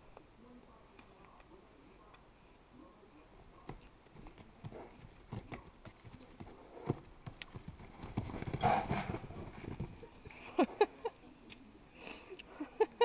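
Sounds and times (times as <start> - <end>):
horse hooves thudding in sand: 3.6 - 10.3.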